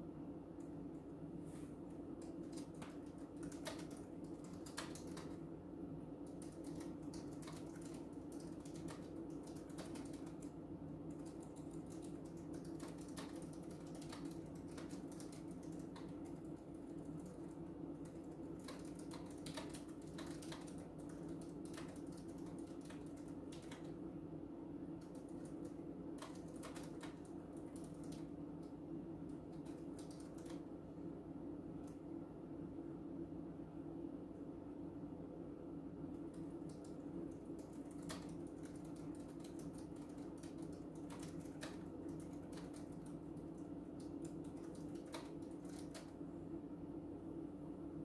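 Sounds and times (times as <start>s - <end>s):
faint low hum: 0.0s - 48.0s
keyboard key clicks: 25.0s - 28.3s, 36.3s - 43.2s.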